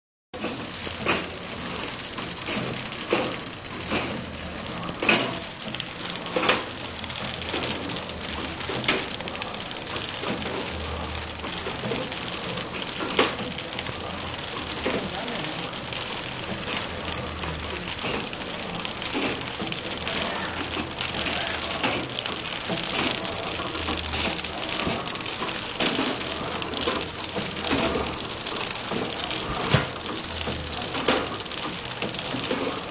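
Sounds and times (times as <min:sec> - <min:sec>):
machine motor hum: 0:00.4 - 0:32.9.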